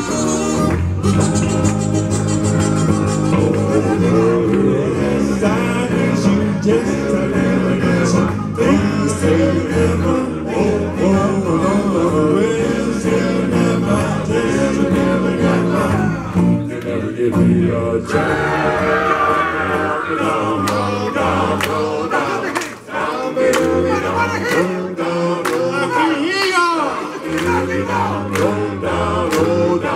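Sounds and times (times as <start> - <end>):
electric guitar: 0.0 - 21.7
bass guitar: 0.0 - 21.8
group of voices singing: 0.0 - 29.9
men singing: 0.0 - 29.9.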